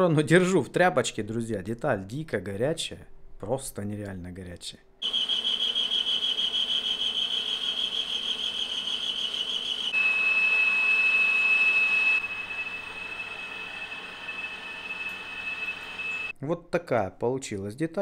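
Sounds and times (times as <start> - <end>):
high-pitched whine: 5.0 - 16.3
metal lathe running: 5.0 - 16.3.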